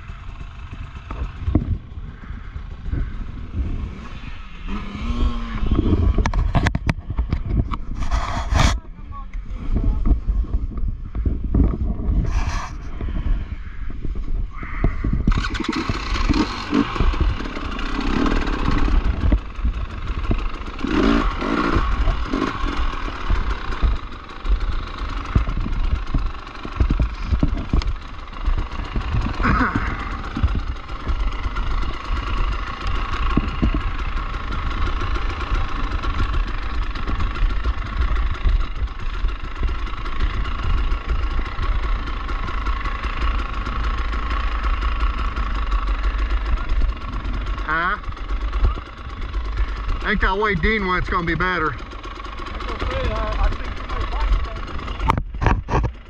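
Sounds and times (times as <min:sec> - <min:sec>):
dirt bike engine: 0:00.0 - 0:56.0
bike knocks and rattles: 0:14.6 - 0:47.5.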